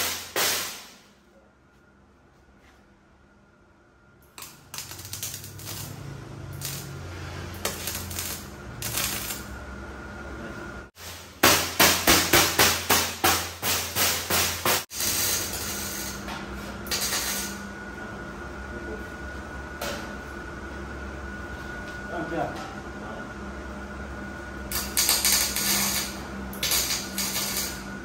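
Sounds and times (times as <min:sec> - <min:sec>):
hammer striking steel: 0:11.4 - 0:14.8.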